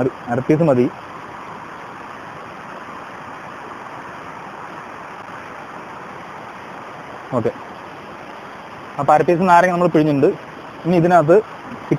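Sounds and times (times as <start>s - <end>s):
stream rushing over rocks: 0.0s - 11.9s.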